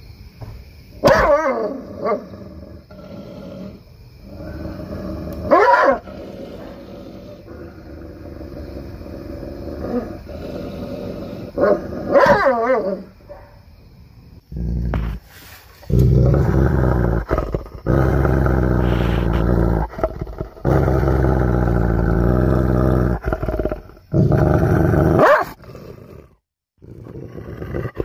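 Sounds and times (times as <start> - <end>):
dog barking loudly: 1.0 - 2.2, 5.5 - 6.7, 11.6 - 13.5, 25.2 - 25.6
dog growling: 1.1 - 13.1, 14.5 - 28.0.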